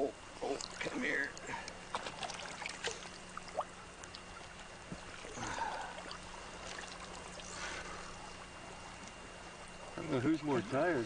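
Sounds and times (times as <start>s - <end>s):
faint steady hum: 0.0s - 11.0s
water splashing and trickling: 0.4s - 10.0s.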